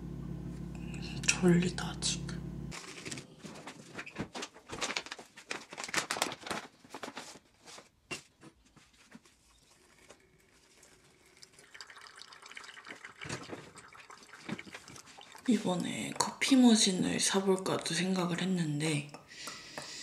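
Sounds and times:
faint steady hum: 0.0s - 2.8s
packaging crinkling and rustling: 2.7s - 11.1s.

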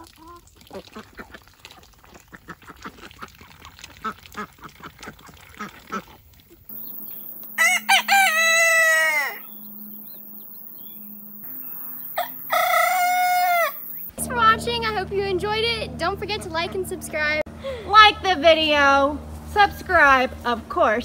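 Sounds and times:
rooster crowing: 7.6s - 9.6s, 12.1s - 14.0s.

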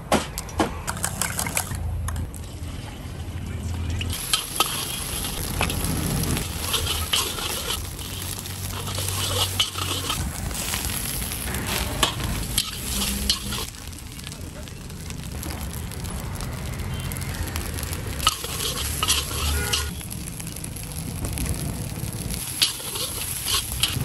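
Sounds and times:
metal spatula scraping wok: 4.1s - 13.7s, 17.7s - 20.0s, 22.4s - 24.0s
food sizzling in hot oil: 4.1s - 24.0s.

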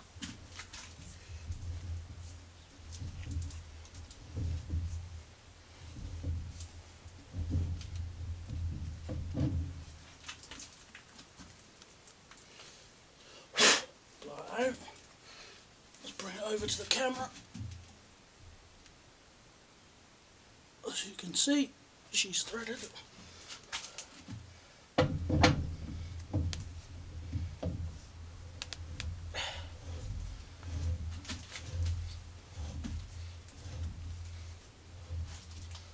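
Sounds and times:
metal rubbing and knocking on metal: 0.0s - 10.7s, 25.0s - 35.9s.

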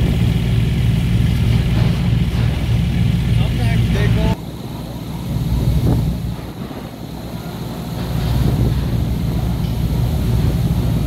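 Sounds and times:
boat engine drone: 0.0s - 11.0s
wind rumbling on microphone: 5.4s - 7.3s, 8.0s - 11.0s.

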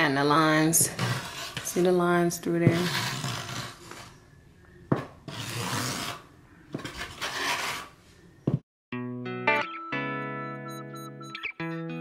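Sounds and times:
trowel scraping through mortar: 0.4s - 4.2s, 5.2s - 8.0s.

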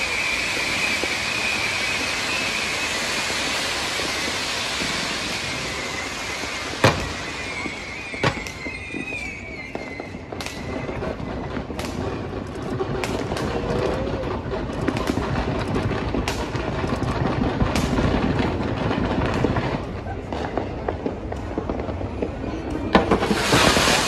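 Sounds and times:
wavering firework whistle: 0.0s - 16.7s, 19.5s - 24.0s
firework bang: 0.0s - 22.3s, 22.9s - 24.0s
crackle and rumble: 0.0s - 24.0s
loud firework cracks: 0.0s - 24.0s.

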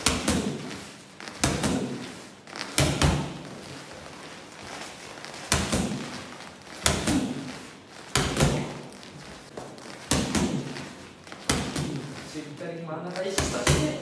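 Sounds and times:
boxing gloves hitting strike pad: 0.0s - 0.7s, 1.4s - 2.0s, 2.7s - 3.5s, 5.5s - 6.1s, 6.8s - 7.5s, 8.2s - 8.8s, 10.0s - 10.8s, 11.4s - 12.1s.

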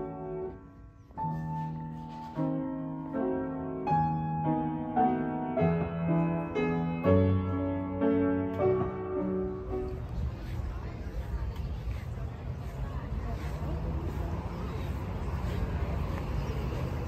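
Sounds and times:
upright piano playing: 0.0s - 10.4s.

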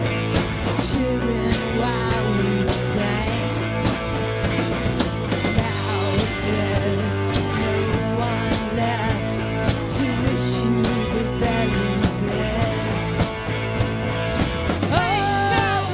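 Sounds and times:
drum kit with cymbal hits: 0.0s - 15.9s
electric guitars: 0.0s - 15.9s
woman singing: 0.6s - 4.0s, 5.5s - 13.4s, 14.9s - 15.9s.

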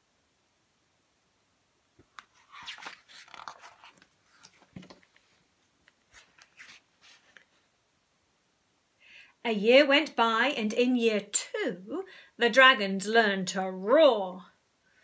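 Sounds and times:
stiff book pages rustling: 2.0s - 7.7s.

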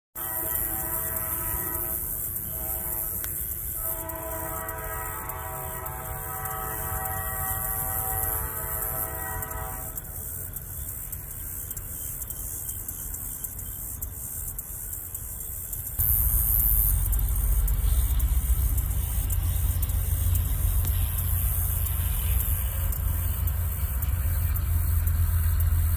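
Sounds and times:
train air horn blasts: 0.2s - 10.7s, 16.0s - 25.9s
low rumble of train: 0.2s - 25.9s.

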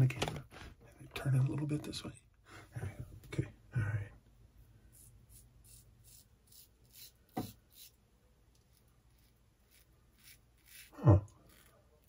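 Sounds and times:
razor scraping stubble: 4.9s - 8.0s, 8.6s - 12.0s.

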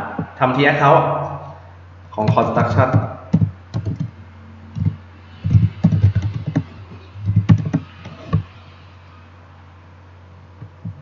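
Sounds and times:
typing on computer keyboard: 2.2s - 4.1s, 4.8s - 8.4s.

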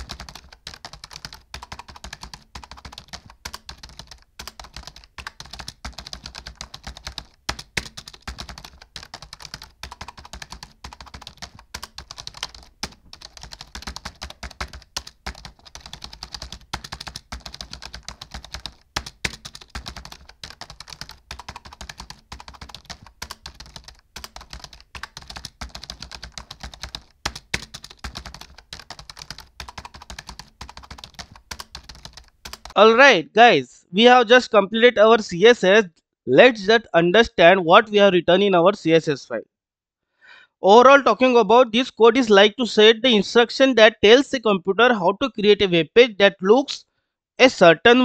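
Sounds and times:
computer keyboard typing fast: 0.0s - 32.8s.

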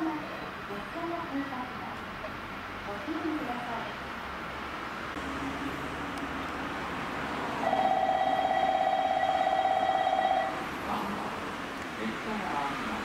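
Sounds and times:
train warning bell trilling: 7.6s - 10.6s.

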